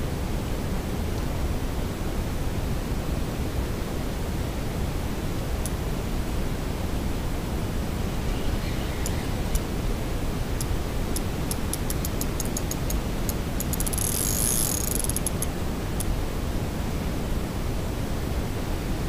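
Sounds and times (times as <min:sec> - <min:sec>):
steady background hiss: 0:00.0 - 0:19.0
fishing reel clicking: 0:10.6 - 0:15.5.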